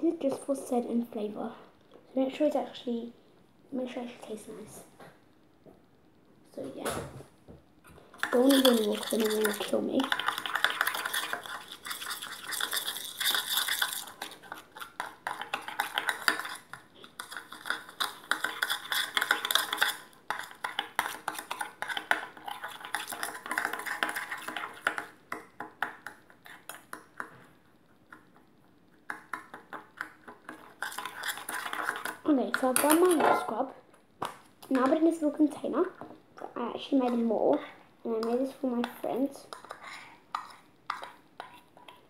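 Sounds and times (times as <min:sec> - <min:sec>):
metal spoon scraping a steel bowl: 0:08.2 - 0:14.6, 0:30.6 - 0:32.1.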